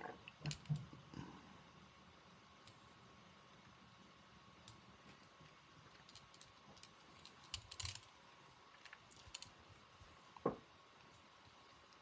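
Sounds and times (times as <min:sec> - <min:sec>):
small tools clicking and tapping: 0:04.7 - 0:08.1.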